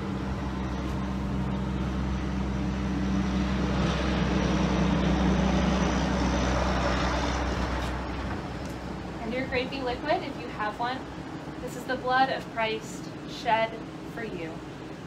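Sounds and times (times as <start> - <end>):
heavy truck driving past: 0.0 - 11.6.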